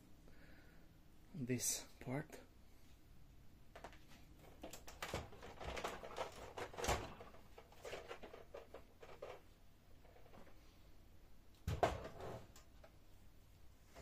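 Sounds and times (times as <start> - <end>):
plastic parts clicking and knocking: 3.7 - 10.6, 11.5 - 13.0.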